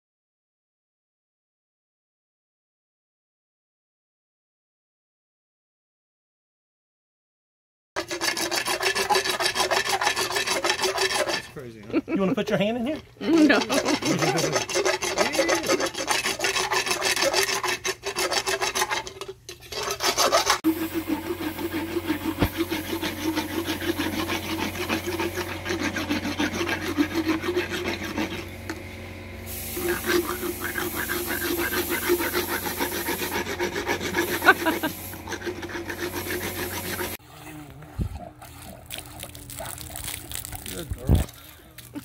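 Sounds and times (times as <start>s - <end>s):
dental float rasping teeth: 8.0s - 11.6s, 13.2s - 28.6s, 29.8s - 42.0s.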